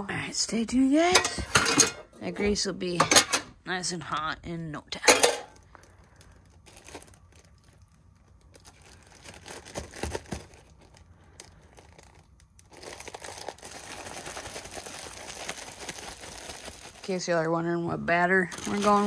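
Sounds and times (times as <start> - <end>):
pan clanking: 1.1 - 2.1, 3.0 - 3.5, 5.0 - 5.6
plastic bag crinkling: 5.2 - 19.0.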